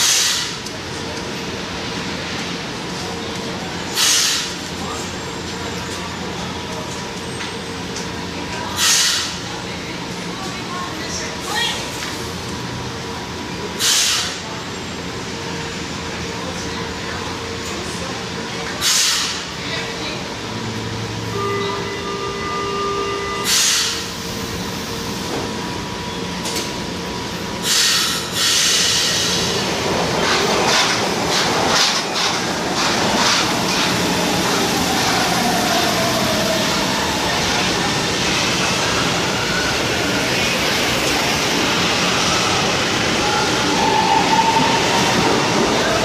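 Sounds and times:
train wheels clacking over rail joints: 0:30.2 - 0:34.1.

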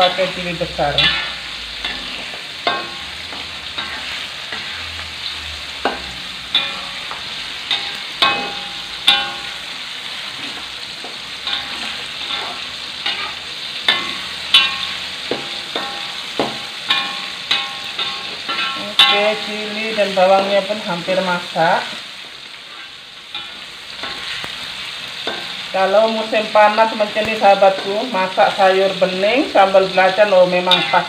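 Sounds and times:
food sizzling in hot oil: 0:00.0 - 0:31.0
spatula knocking against wok: 0:05.8 - 0:09.6, 0:13.9 - 0:19.2.

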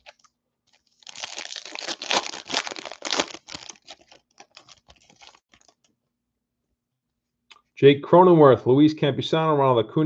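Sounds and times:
foil wrapper tearing and crinkling: 0:00.0 - 0:05.8.

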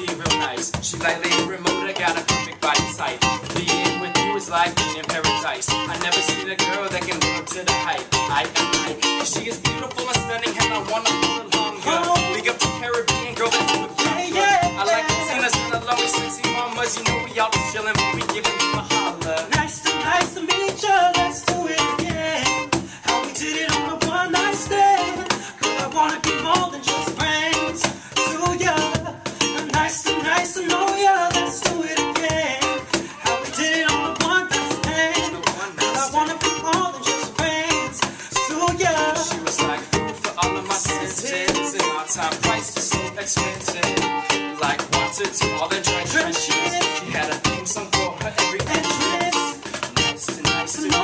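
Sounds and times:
cajon beat: 0:00.0 - 0:51.0
man singing into microphone: 0:00.0 - 0:51.0
ukulele strumming: 0:00.0 - 0:51.0.

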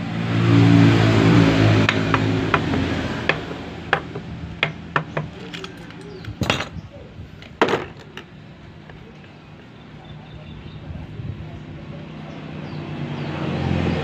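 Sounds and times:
engine hum: 0:00.0 - 0:14.0
metallic clicks of engine parts: 0:01.9 - 0:06.8, 0:07.4 - 0:09.4.

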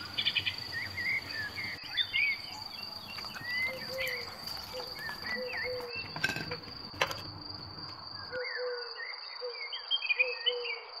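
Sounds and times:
birds chirping: 0:00.0 - 0:08.6
cricket trill: 0:00.0 - 0:09.7.

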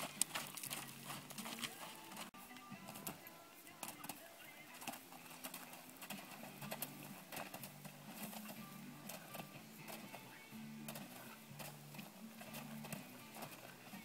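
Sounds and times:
faint music with low notes: 0:00.0 - 0:14.0.

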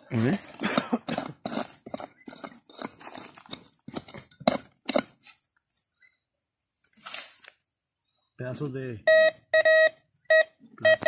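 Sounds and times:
hand pick striking stony soil: 0:00.2 - 0:05.4.

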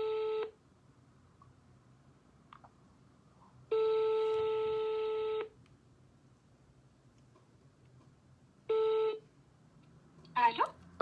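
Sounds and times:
telephone ringback tone: 0:00.0 - 0:00.6, 0:03.7 - 0:05.5, 0:08.7 - 0:09.2.

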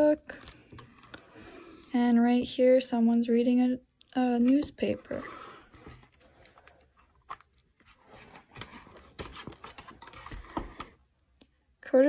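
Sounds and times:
book pages turning: 0:04.4 - 0:11.0.

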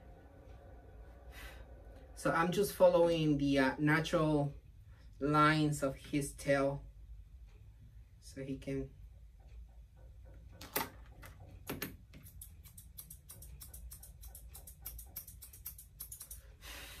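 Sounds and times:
shears snipping fur: 0:12.2 - 0:16.4.

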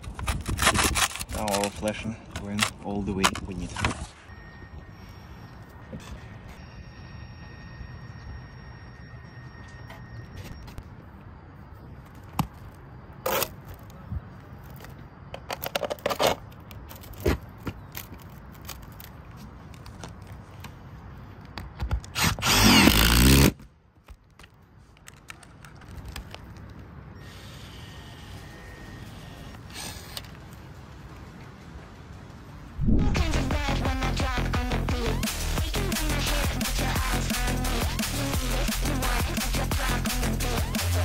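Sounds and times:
power drill driving bolt: 0:22.2 - 0:23.5.

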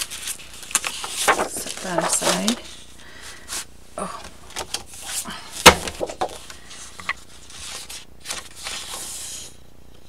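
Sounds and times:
paper sliding and rustling: 0:00.0 - 0:02.8, 0:06.0 - 0:09.6.

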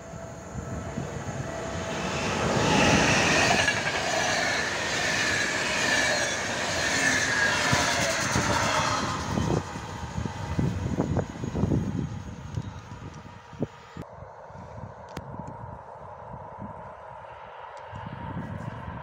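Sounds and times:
train passing at speed: 0:00.0 - 0:14.0.

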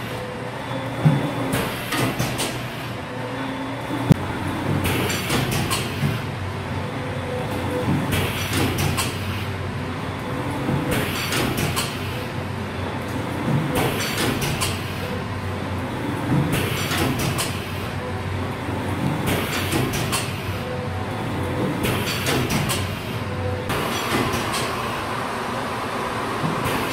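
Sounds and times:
machine humming: 0:00.0 - 0:26.9
hiss and clatter of sealing: 0:10.9 - 0:12.2, 0:13.8 - 0:15.1, 0:16.3 - 0:17.9, 0:19.2 - 0:20.6, 0:21.8 - 0:24.8.

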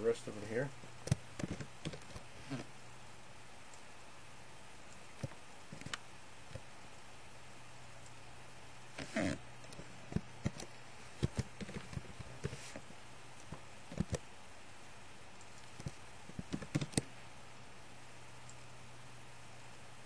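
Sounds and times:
steady low hum: 0:00.0 - 0:20.0
mouse clicking: 0:01.0 - 0:02.2, 0:04.9 - 0:06.6, 0:09.7 - 0:12.6, 0:13.4 - 0:14.2, 0:15.4 - 0:17.1
keyboard typing: 0:01.1 - 0:02.2, 0:09.7 - 0:12.8, 0:13.4 - 0:14.2, 0:15.4 - 0:17.1.

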